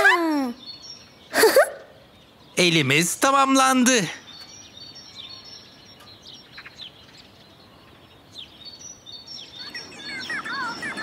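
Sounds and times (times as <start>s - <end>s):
birds chirping: 0.0s - 11.0s
soft outdoor ambience: 0.0s - 11.0s
bird warbling calls: 4.2s - 11.0s.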